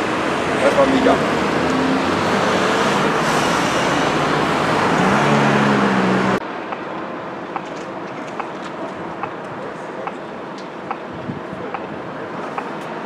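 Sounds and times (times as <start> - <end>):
cars driving by: 0.0 - 13.0
quiet street background: 0.0 - 13.0
vehicle engine hum: 0.0 - 13.0.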